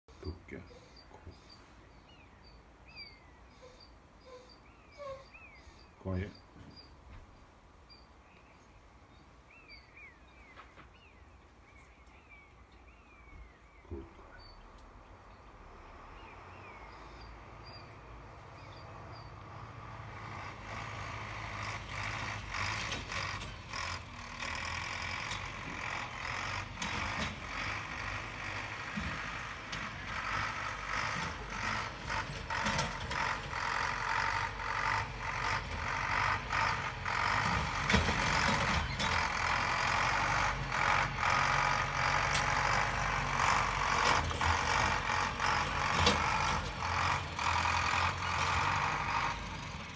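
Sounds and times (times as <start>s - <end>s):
tractor engine running: 14.3s - 49.9s
machine rattling and clanking: 19.7s - 49.9s.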